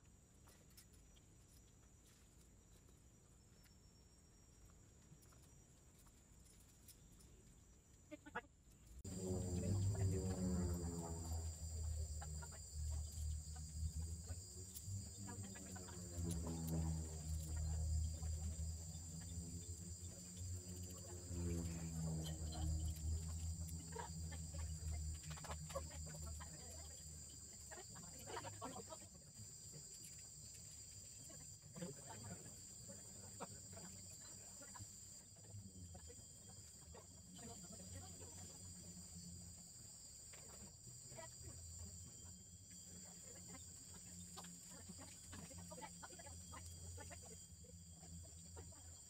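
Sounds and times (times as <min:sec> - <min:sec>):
insects droning: 0:00.0 - 0:49.0
low hum: 0:08.7 - 0:49.0
low rumble: 0:09.0 - 0:28.1.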